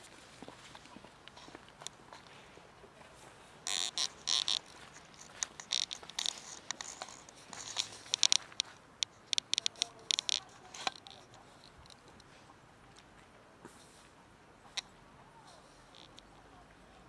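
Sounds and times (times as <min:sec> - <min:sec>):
plastic tray crinkling on gravel: 0:03.7 - 0:08.7.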